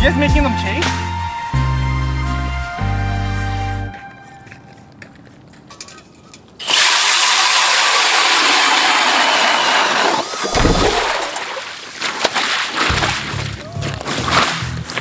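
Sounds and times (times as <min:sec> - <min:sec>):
ice auger grinding through ice: 0:06.6 - 0:11.2.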